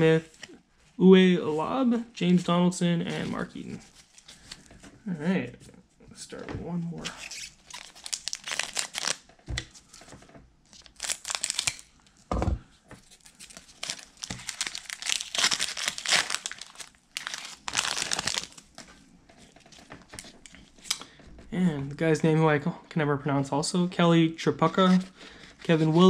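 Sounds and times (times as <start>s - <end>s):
wrapper crinkling: 7.2s - 10.0s, 10.7s - 11.9s, 13.0s - 18.9s.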